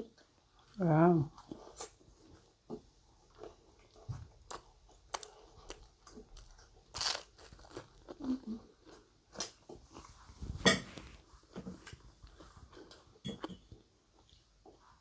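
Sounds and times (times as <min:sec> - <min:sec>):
chewing with crunches: 0:00.0 - 0:15.0.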